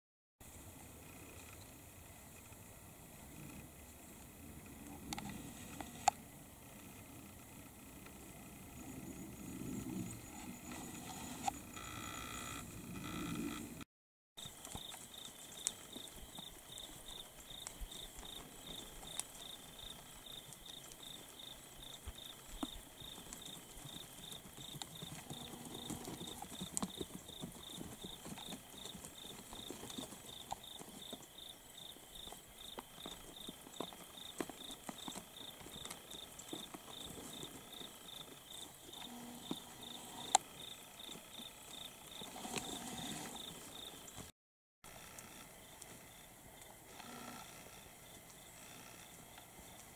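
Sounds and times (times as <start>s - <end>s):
hooves on stony ground: 8.0s - 11.6s, 14.4s - 44.3s, 44.9s - 49.9s
insect chirping: 14.4s - 44.3s, 44.9s - 49.9s.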